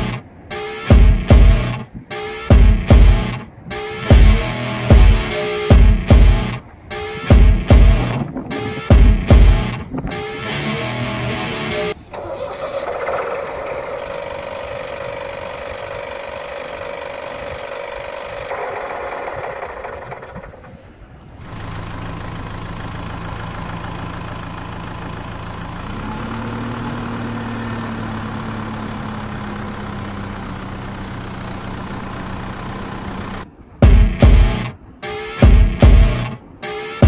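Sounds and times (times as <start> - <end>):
engine idling: 0.0 - 37.0
engine running steadily: 0.0 - 37.0.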